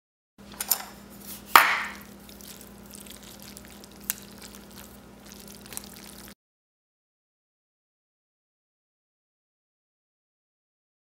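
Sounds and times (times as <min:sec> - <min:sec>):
faint steady hum: 0:00.4 - 0:06.4.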